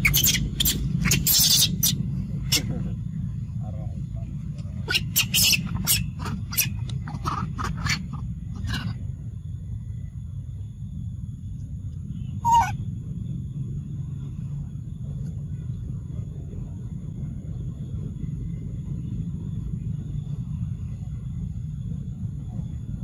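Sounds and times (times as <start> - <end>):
monkey call: 0.0 - 2.9, 4.8 - 9.0, 12.4 - 12.8
wind rumble on microphone: 0.0 - 23.0.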